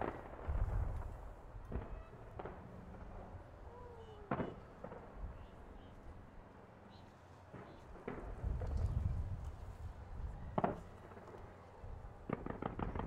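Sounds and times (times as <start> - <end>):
sharp firework bangs: 0.0 - 3.3, 4.2 - 5.6, 10.6 - 11.2, 12.2 - 13.0.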